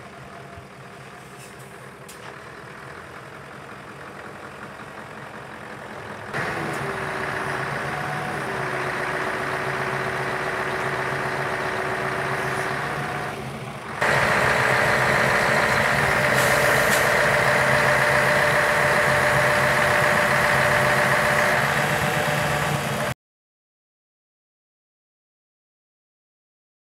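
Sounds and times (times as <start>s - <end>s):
diesel engine idling: 0.0s - 23.2s
hydraulic pump whine: 14.0s - 23.1s.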